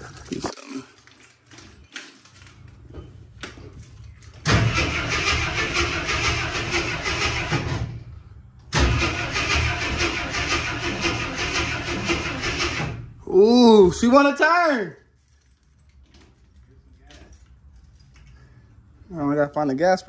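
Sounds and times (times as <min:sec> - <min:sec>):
truck engine cranking: 0:03.8 - 0:13.2.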